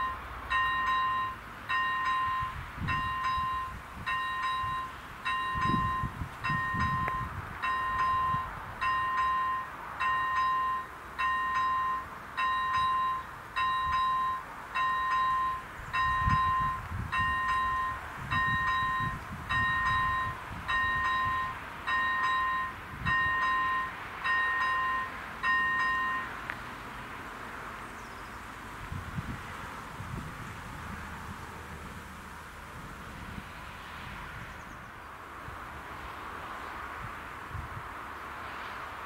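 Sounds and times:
level crossing bell two-tone ding: 0.0s - 26.3s.

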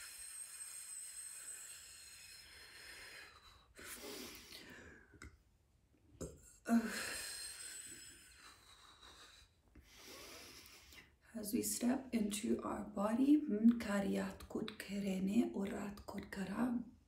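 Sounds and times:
woman breathing deeply: 0.0s - 5.2s, 6.7s - 11.2s.

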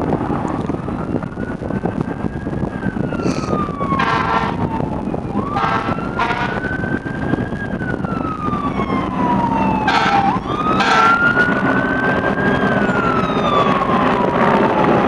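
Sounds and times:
fire engine siren wailing: 0.0s - 15.0s
steady low rumble: 0.0s - 15.0s
short horn blasts: 4.0s - 4.6s, 5.6s - 6.6s, 9.9s - 11.2s.

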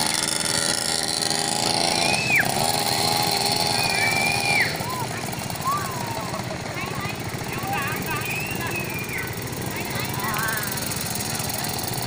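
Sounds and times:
mini motorbike engine buzzing: 0.0s - 12.0s
high gliding whistle-like calls: 1.9s - 5.9s, 8.0s - 9.4s.

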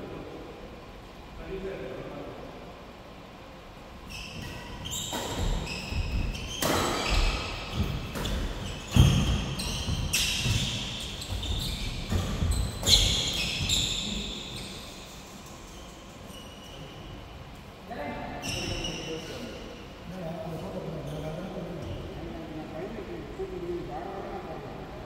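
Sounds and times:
shoes squeaking on court: 4.0s - 17.2s.

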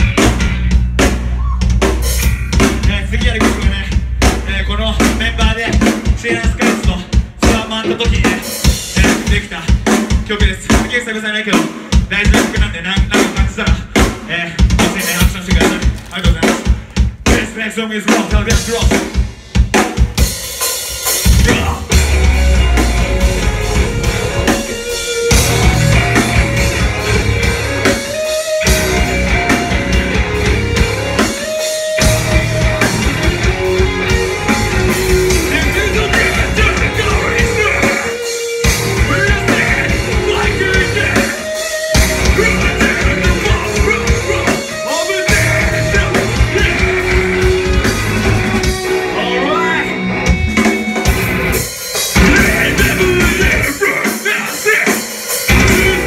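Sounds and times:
electric guitars: 0.0s - 10.9s, 18.4s - 56.0s
bass guitar: 0.0s - 17.7s, 18.3s - 54.4s, 55.3s - 56.0s
drum kit: 0.0s - 56.0s
person singing: 34.2s - 50.0s, 52.2s - 56.0s.

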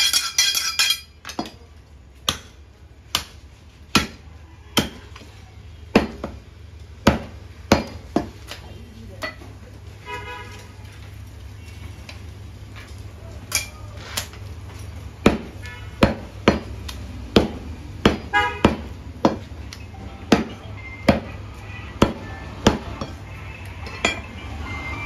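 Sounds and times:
cleaver chopping on wooden block: 15.2s - 16.8s, 17.4s - 19.5s.

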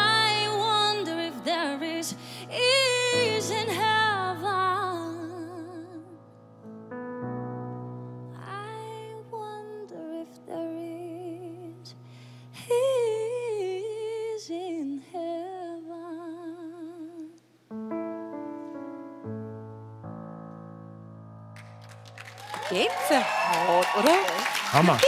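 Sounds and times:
woman singing a slow ballad: 0.0s - 6.2s, 8.3s - 17.4s
sustained piano chords: 0.0s - 11.8s, 17.7s - 22.4s.

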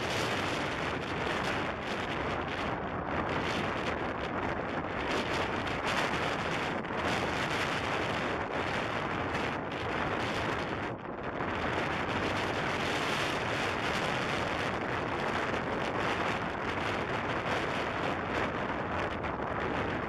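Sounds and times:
wind on microphone: 0.0s - 20.0s.

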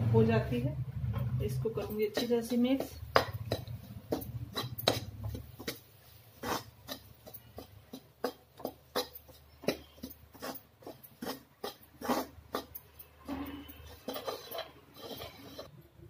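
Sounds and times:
spoon scraping metal pan: 8.3s - 15.7s.

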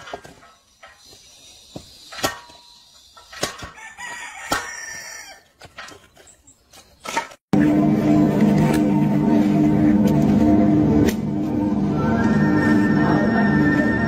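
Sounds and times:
wood splitter blade cracking wood: 3.2s - 3.8s.

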